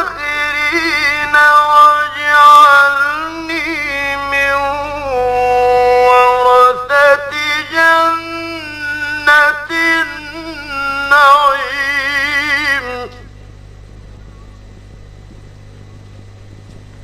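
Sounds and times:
man reciting melodically: 0.0s - 13.4s.

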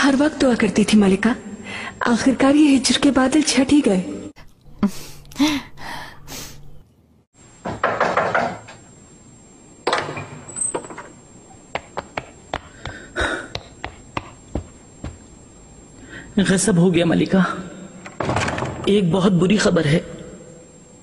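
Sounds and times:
door banging shut: 7.6s - 8.8s, 9.8s - 11.1s, 18.1s - 18.9s
quick footsteps on hard floor: 11.7s - 15.4s.

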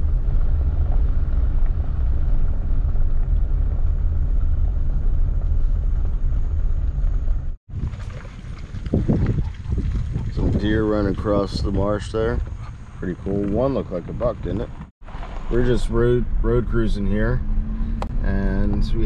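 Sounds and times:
car rumbling on dirt road: 0.0s - 19.0s.

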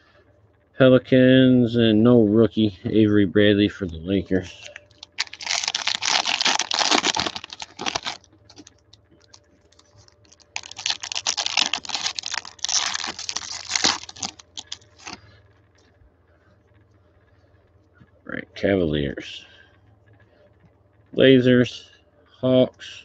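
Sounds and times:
foil wrapper crinkling and tearing: 4.5s - 15.2s.

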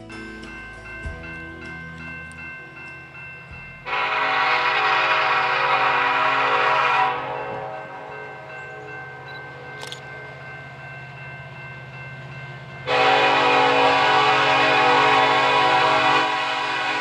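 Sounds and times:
locomotive horn blast: 3.8s - 8.1s, 12.9s - 17.0s.

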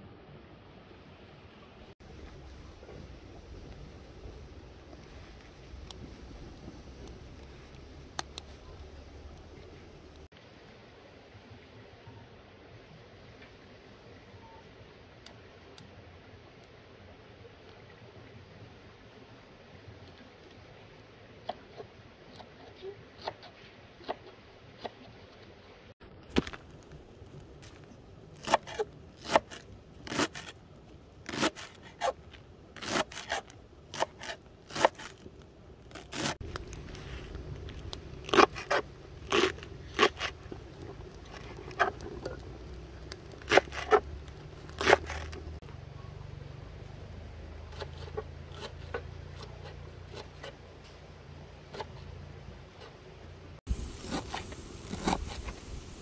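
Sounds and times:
low steady rumble: 0.0s - 21.3s, 33.5s - 56.0s
knife cutting vegetables: 31.3s - 32.2s, 32.8s - 35.2s, 35.9s - 36.4s, 38.2s - 40.5s, 43.3s - 45.5s.

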